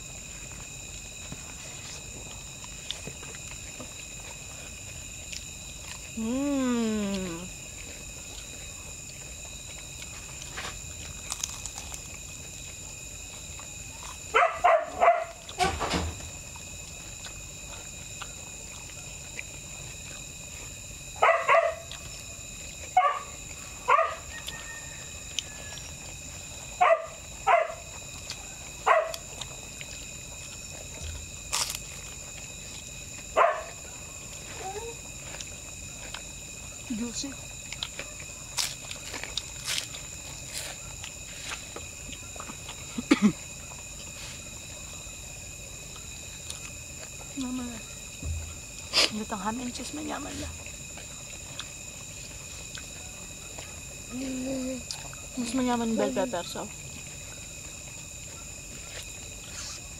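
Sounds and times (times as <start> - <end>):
dog barking: 14.3 - 15.5, 21.2 - 22.0, 23.0 - 24.9, 26.8 - 27.9, 28.8 - 29.2, 33.4 - 34.0.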